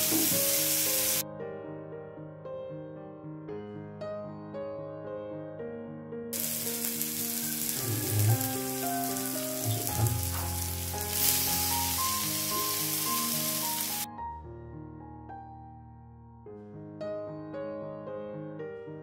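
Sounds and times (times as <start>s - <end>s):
vegetables sizzling in hot oil: 0.0s - 1.2s, 6.4s - 14.1s
soft piano music: 0.0s - 19.0s.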